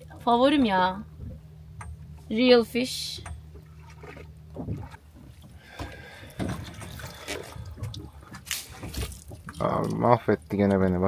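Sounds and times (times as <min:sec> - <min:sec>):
low hum: 0:00.0 - 0:11.0
water lapping: 0:00.0 - 0:11.0
soft knocks on boat: 0:03.1 - 0:09.6
sharp splash: 0:06.9 - 0:09.6.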